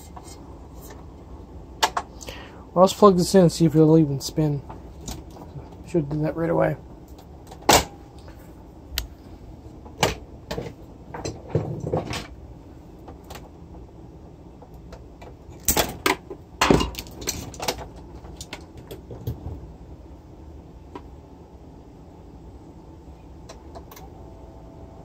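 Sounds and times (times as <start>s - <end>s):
cables clicking and rattling: 14.6s - 19.6s.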